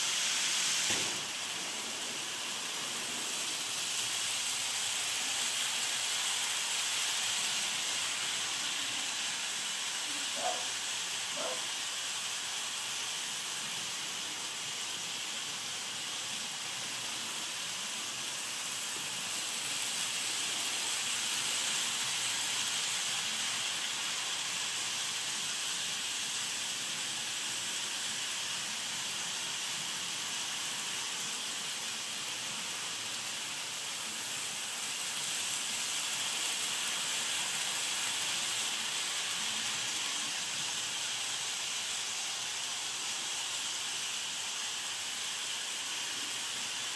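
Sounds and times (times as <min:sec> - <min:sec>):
model trains hissing on track: 0:00.0 - 0:46.9.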